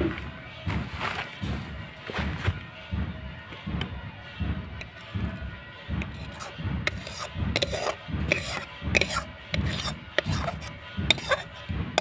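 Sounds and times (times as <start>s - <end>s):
spoon scraping pulp from metal pan: 6.0s - 11.7s.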